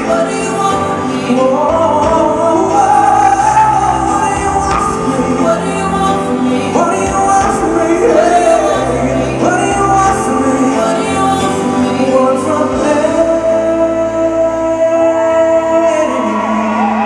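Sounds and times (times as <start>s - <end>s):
backing singers: 0.0s - 17.0s
live pop-rock band: 0.0s - 17.0s
man singing lead: 0.0s - 17.0s.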